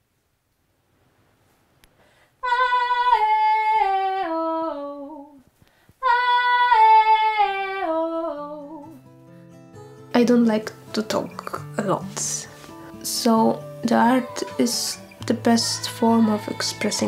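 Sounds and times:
woman singing unaccompanied: 2.4 - 9.0, 10.2 - 17.0.

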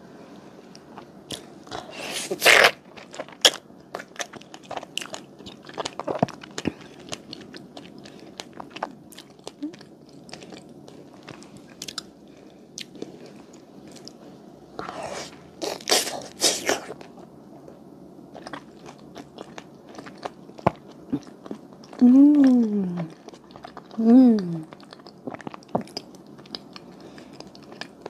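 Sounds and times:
person biting into food: 2.0 - 2.8.

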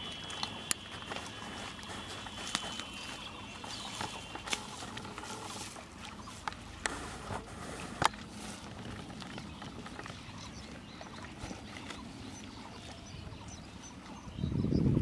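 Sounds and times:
sack rustling and scraping: 0.9 - 9.6.

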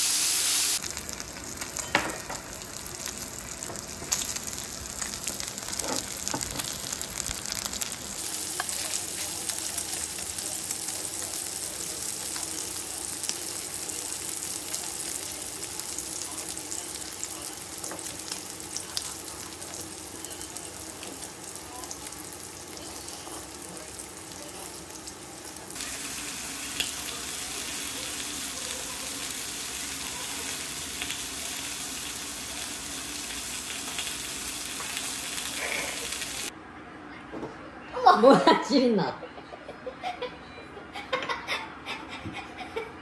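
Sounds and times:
food sizzling in a pan: 0.0 - 36.5.

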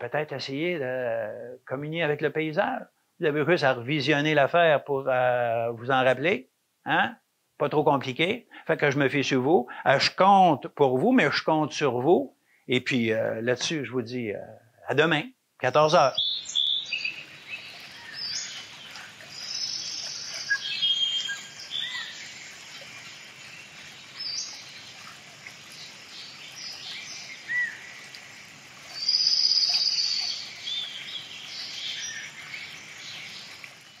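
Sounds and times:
faint hiss: 0.0 - 34.0
birds singing and chirping: 15.7 - 28.2, 28.8 - 34.0
bird trill: 16.1 - 24.8.

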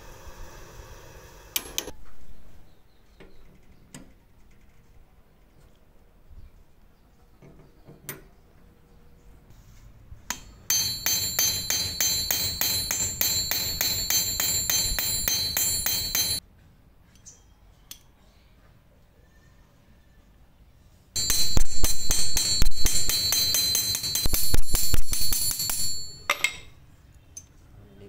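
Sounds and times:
hammer striking metal pin: 10.3 - 16.4, 21.2 - 26.7
light clicks of metal parts handled: 26.1 - 27.6.

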